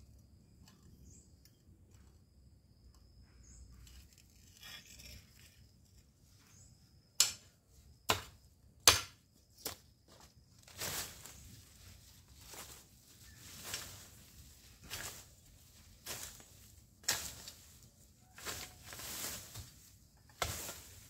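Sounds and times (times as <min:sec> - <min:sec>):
hoe scraping soil: 0:04.2 - 0:06.0, 0:13.3 - 0:21.0
garden hoe chopping soil: 0:16.0 - 0:17.6, 0:18.4 - 0:21.0.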